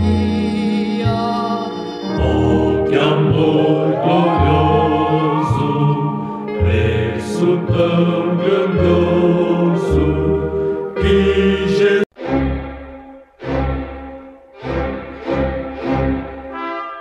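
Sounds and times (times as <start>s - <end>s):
instrumental accompaniment with bass: 0.0s - 16.5s
choir singing a gospel hymn: 1.2s - 12.1s.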